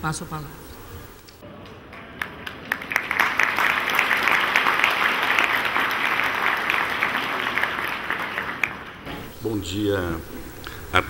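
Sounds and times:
audience applauding: 0:01.4 - 0:09.6.

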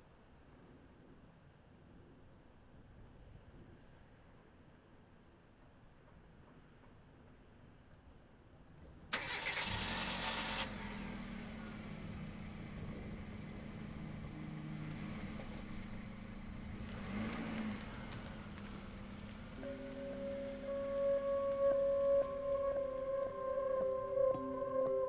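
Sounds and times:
car starter cranking: 0:09.1 - 0:20.9
car engine idling: 0:09.1 - 0:24.0.

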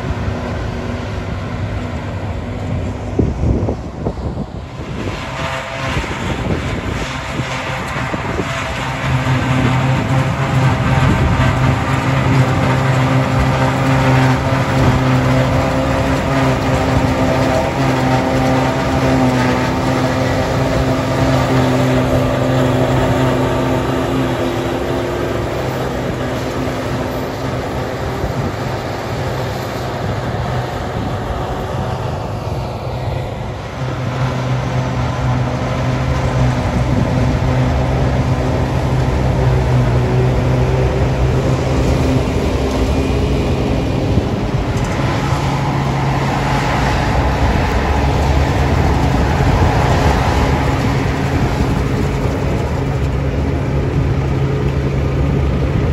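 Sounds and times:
tractor diesel engine drone: 0:00.0 - 0:55.9
forage harvester chopping grass: 0:05.3 - 0:32.0.

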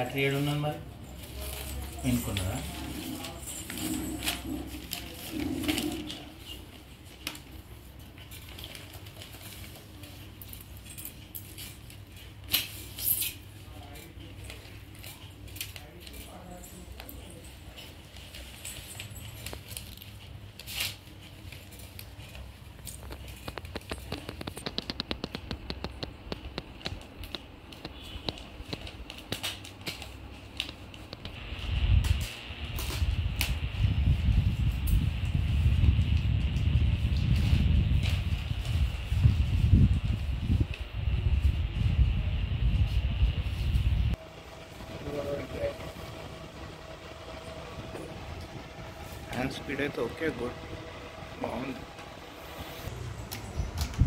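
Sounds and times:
small fan motor whirring: 0:31.3 - 0:54.0.

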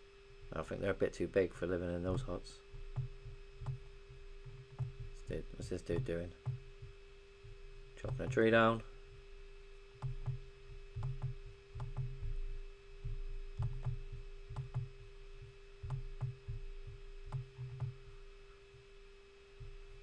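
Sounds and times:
faint steady hum: 0:00.0 - 0:20.0
computer mouse clicking: 0:02.9 - 0:03.8, 0:04.5 - 0:05.1, 0:10.0 - 0:10.4, 0:11.0 - 0:12.2, 0:13.6 - 0:15.0, 0:15.8 - 0:16.4, 0:17.3 - 0:18.0.

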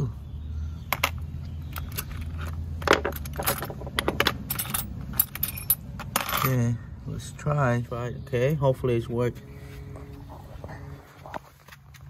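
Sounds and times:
low steady hum: 0:00.0 - 0:12.0
metal hand tools clinking: 0:01.8 - 0:06.6.

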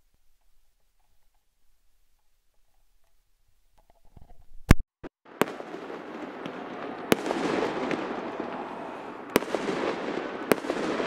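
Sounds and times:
firework shells bursting: 0:05.3 - 0:11.0.

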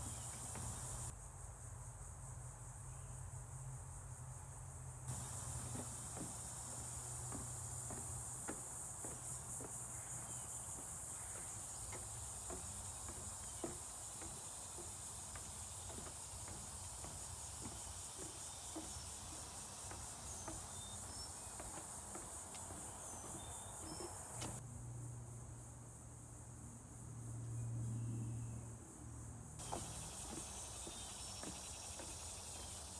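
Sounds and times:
footsteps on wooden boardwalk: 0:00.0 - 0:01.1, 0:05.1 - 0:24.6, 0:29.6 - 0:32.9
high-pitched insect chorus: 0:00.0 - 0:32.9.

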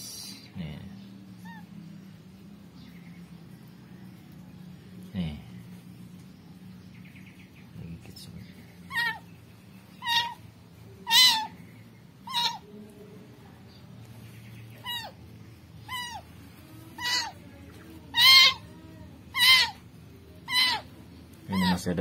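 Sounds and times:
kitten meowing: 0:08.9 - 0:09.2, 0:10.0 - 0:10.4, 0:17.0 - 0:17.4, 0:18.1 - 0:19.8, 0:20.4 - 0:20.9, 0:21.5 - 0:21.9.

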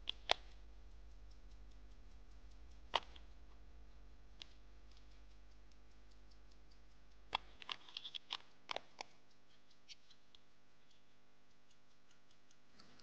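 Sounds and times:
pocket watch ticking: 0:00.0 - 0:13.0
fingers clicking on watch case: 0:07.4 - 0:10.2.

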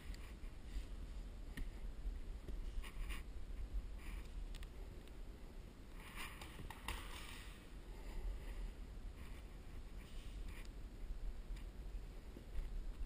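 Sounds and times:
steady low rumble: 0:00.0 - 0:06.7, 0:07.3 - 0:13.0.

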